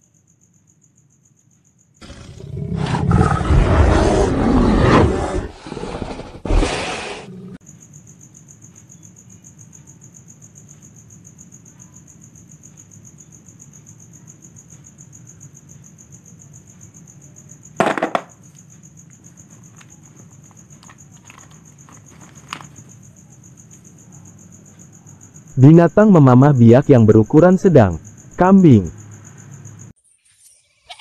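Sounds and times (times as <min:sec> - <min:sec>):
insects trilling: 0:00.0 - 0:31.0
plastic toy clattering into basket: 0:17.8 - 0:18.3.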